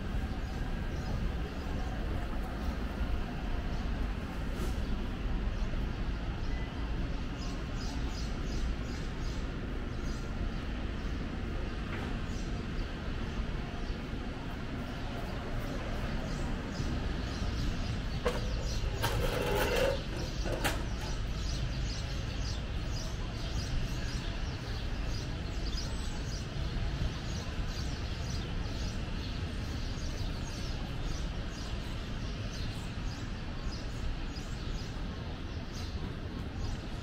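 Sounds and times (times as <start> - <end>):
people talking: 0.0 - 8.1
low traffic rumble: 0.0 - 37.0.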